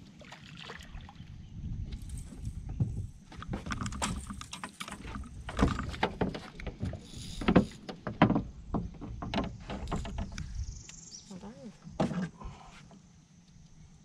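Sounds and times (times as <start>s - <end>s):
water splashing: 0.0s - 1.3s.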